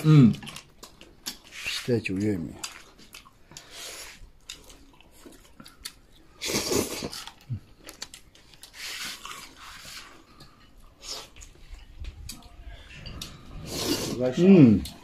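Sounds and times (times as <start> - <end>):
people slurping noodles: 6.3 - 7.7, 8.7 - 11.9, 12.7 - 15.0.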